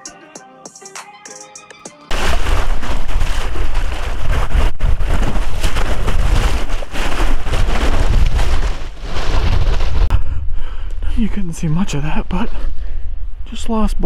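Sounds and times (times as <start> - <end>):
creek water splashing: 2.1 - 9.2
person wading through water: 2.1 - 9.3
heavy low rumble: 9.2 - 14.0.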